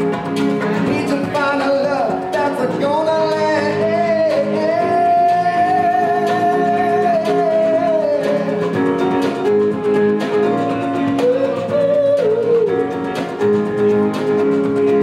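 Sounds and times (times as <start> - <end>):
man singing long held notes: 0.9 - 8.7, 11.1 - 13.0.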